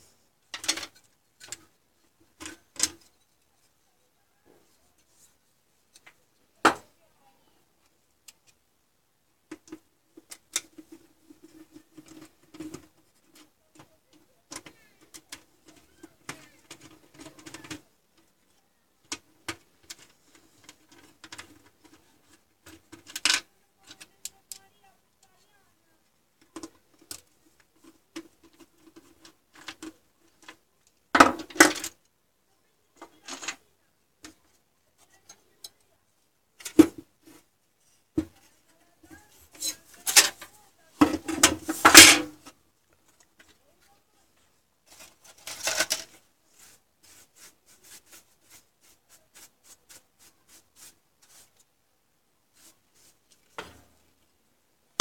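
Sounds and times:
metal parts clicking and knocking: 0.5 - 1.6, 39.5 - 42.4, 44.9 - 46.2
metal parts clattering: 41.1 - 42.3, 44.9 - 46.2.

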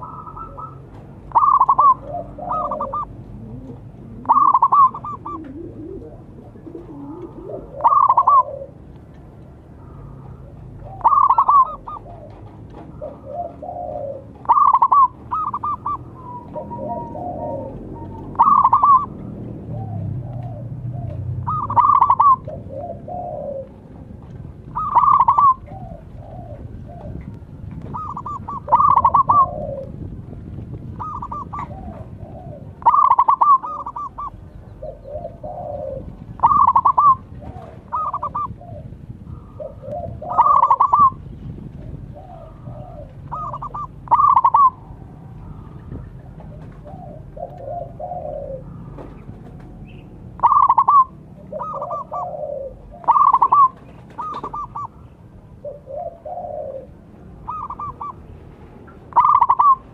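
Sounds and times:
faint low cooing: 0.0 - 8.8, 9.7 - 23.9
dove cooing staccato call: 0.0 - 30.2, 30.8 - 59.9.

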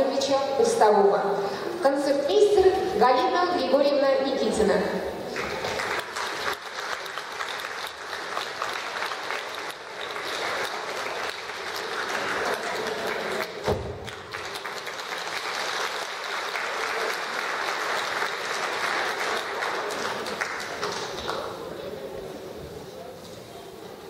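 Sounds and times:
audience applauding: 5.3 - 21.9.

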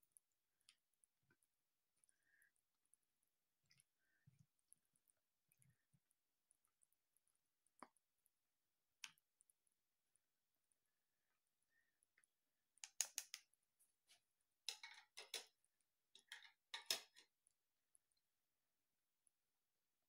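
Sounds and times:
plastic tool clicking on glass jars: 12.8 - 13.5, 14.7 - 15.6, 16.2 - 17.3.

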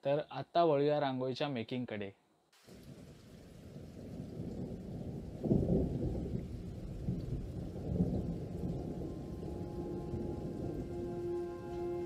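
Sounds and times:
thunder rumbling: 2.7 - 12.0.

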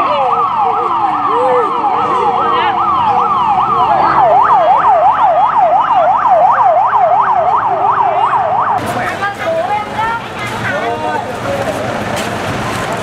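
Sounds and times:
siren yelping: 0.0 - 8.8.

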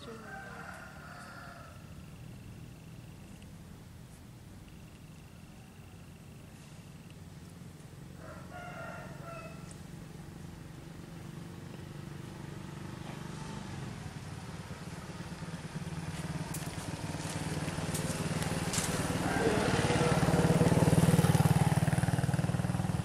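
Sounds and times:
rooster crowing: 0.0 - 2.0, 8.2 - 9.7, 19.2 - 20.5
motorcycle engine humming: 0.0 - 23.0.

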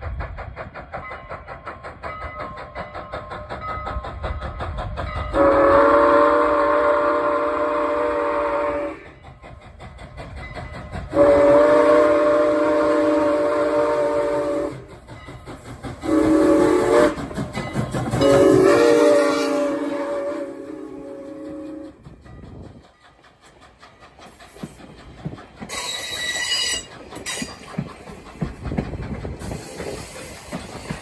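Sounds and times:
locomotive engine rumble: 0.0 - 31.0
steam locomotive whistle: 5.3 - 9.2, 11.1 - 14.9, 16.0 - 17.4, 18.2 - 22.1, 25.7 - 27.6.

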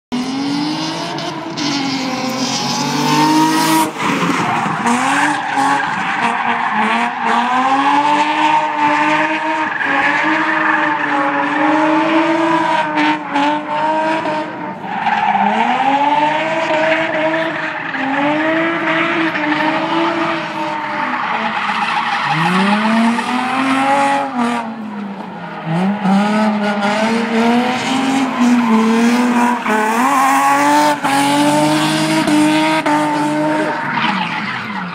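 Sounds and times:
car engine revving hard: 0.1 - 21.6, 22.3 - 34.8
tyres squealing and skidding: 0.2 - 34.9.

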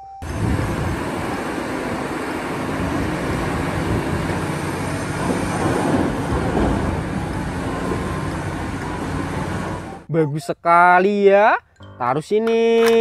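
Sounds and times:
excavator engine and hydraulics rumble: 0.0 - 10.1.

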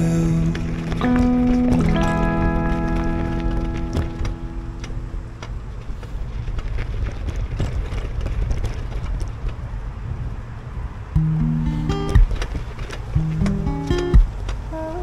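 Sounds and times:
song with strummed acoustic guitar: 0.0 - 5.4, 11.2 - 15.0
wind and travel rumble: 0.0 - 15.0.

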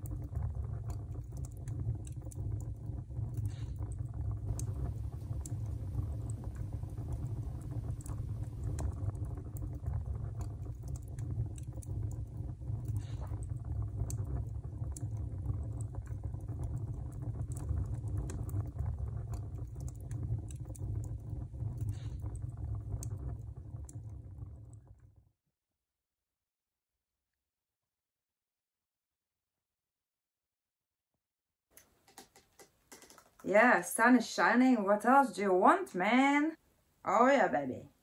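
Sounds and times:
wood fire crackling: 0.0 - 25.2
fire low rumble: 0.0 - 25.3.

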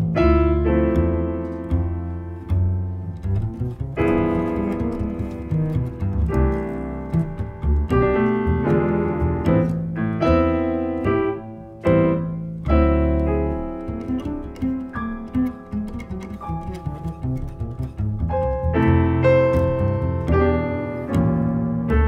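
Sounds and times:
jazz grand piano: 0.0 - 22.0
plucked double bass: 0.0 - 22.0.

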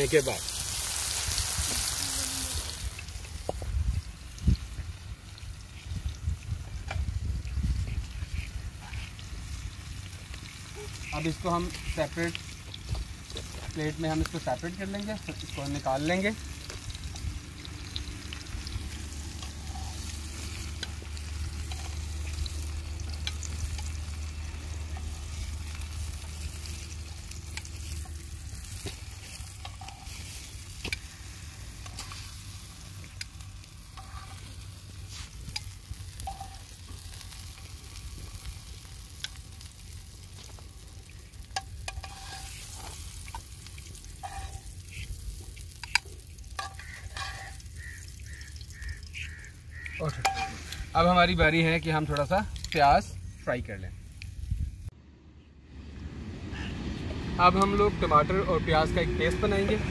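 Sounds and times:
oil sizzling in a frying pan: 0.0 - 54.9
utensil scraping a pan: 18.6 - 21.0, 29.1 - 32.4, 33.9 - 36.8, 41.6 - 45.1, 46.6 - 47.8, 49.9 - 50.9
low rumble: 54.0 - 59.9.

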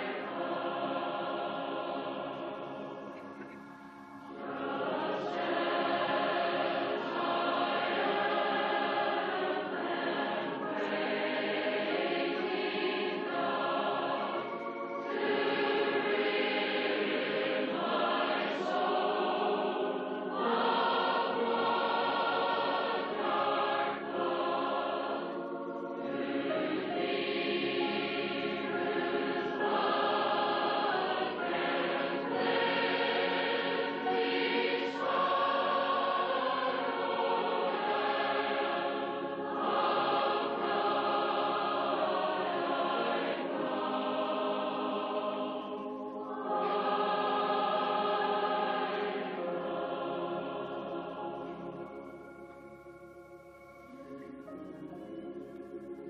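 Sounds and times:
large choir singing a hymn: 0.0 - 56.0.

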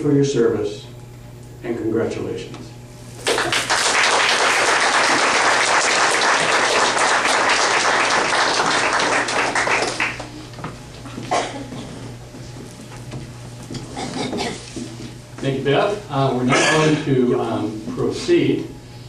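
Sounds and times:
audience applauding: 3.2 - 10.4.

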